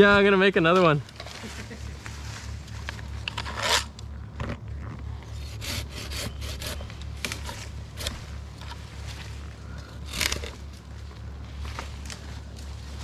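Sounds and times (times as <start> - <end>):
steady low hum: 0.0 - 13.0
wood being scraped: 3.3 - 4.0, 5.2 - 8.8, 10.0 - 10.7.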